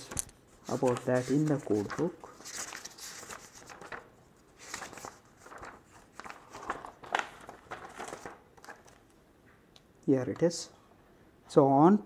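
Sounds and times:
paper pages rustling: 0.0 - 9.2.

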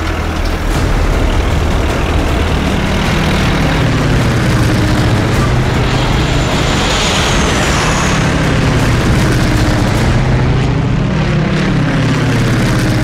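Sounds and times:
jeep engine running: 0.0 - 13.0
propeller plane engine: 0.0 - 13.0.

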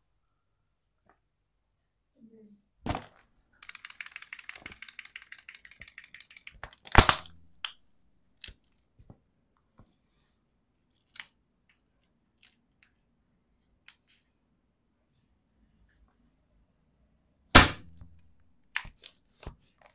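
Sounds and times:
toy mechanism clicking: 3.6 - 7.8.

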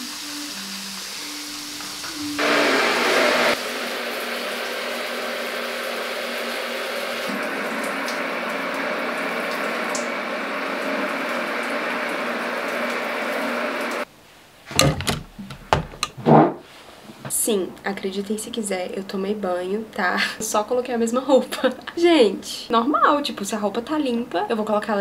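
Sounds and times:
short knocks or rustles: 14.7 - 17.3.

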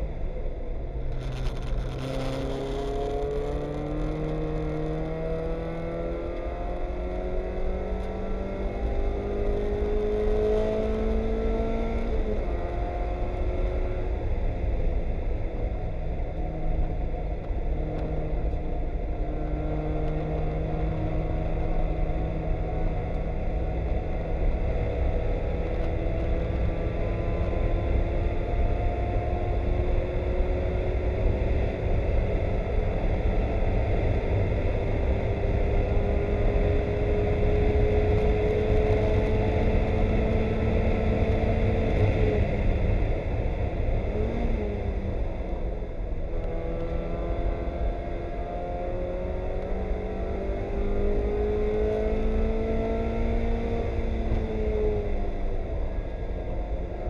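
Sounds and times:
low rumble of car at speed: 0.0 - 57.0.

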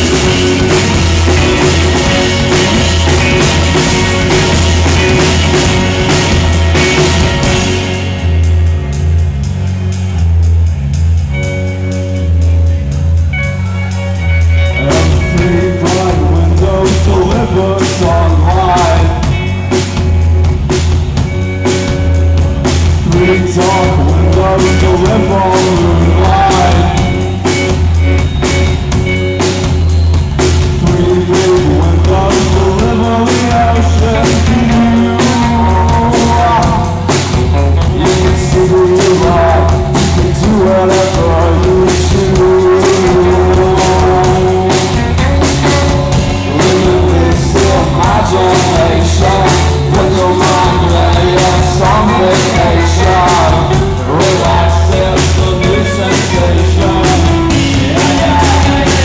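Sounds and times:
drum beats: 0.0 - 59.0
rock band playing live: 0.0 - 59.0.

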